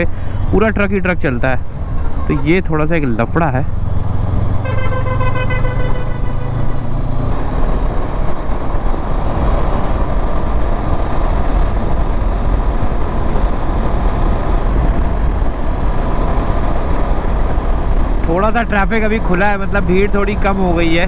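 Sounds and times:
road noise: 0.0 - 21.0
wind rushing over microphone: 0.0 - 21.0
motorcycle engine: 3.5 - 18.3
vehicle horn: 4.6 - 6.8.

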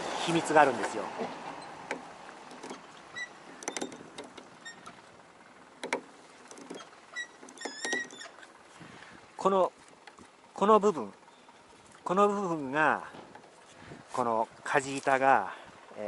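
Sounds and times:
wooden linkage clicks and knocks: 0.8 - 8.6, 13.1 - 13.6
short high squeaks: 1.5 - 5.1, 5.8 - 8.7.

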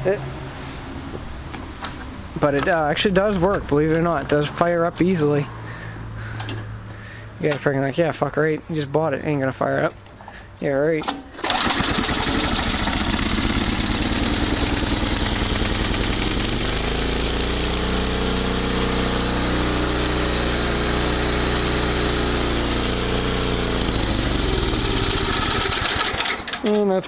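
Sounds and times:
small snowblower engine running: 11.4 - 26.6.

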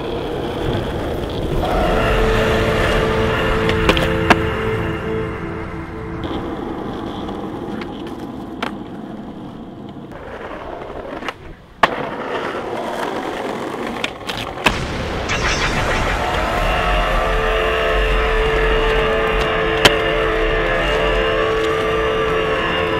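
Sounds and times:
skateboard wheels rolling on asphalt: 0.0 - 5.0, 6.2 - 14.7, 18.5 - 22.9
skateboard clacking on ground: 6.8 - 14.7.

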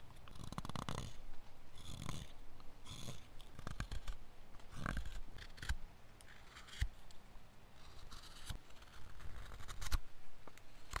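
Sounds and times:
knife whittling wood: 1.8 - 7.0.

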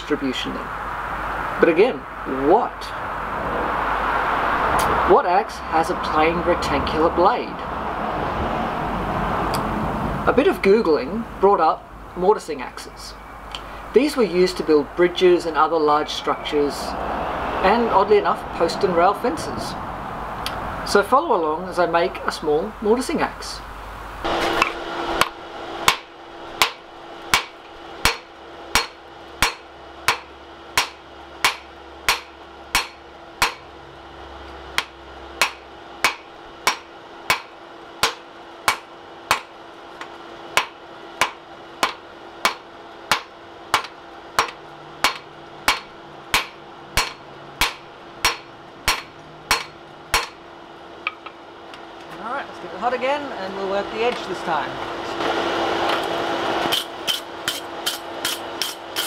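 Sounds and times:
hammer striking steel on anvil: 24.6 - 33.7, 34.8 - 39.5, 40.6 - 50.4, 56.7 - 59.0.

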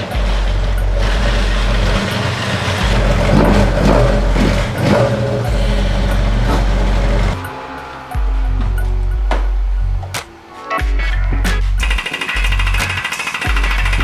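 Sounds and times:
car engine revving: 0.0 - 10.5
deep bass music: 0.0 - 14.0.

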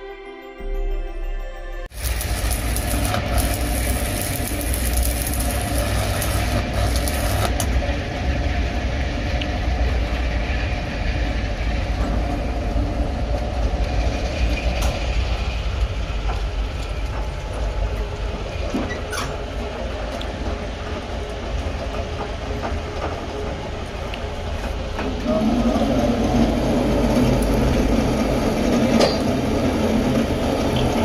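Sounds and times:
arc welding crackling: 1.9 - 8.2
low machinery hum: 2.0 - 31.0.

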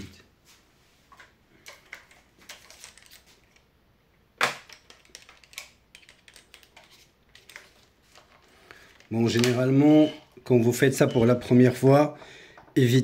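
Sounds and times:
tools clicking and knocking: 4.4 - 7.7.

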